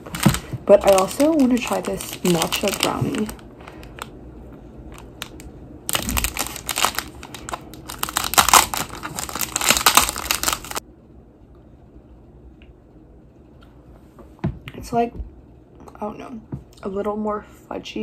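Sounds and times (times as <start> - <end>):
plastic wrapper crinkling: 0.0 - 4.2, 4.9 - 10.8.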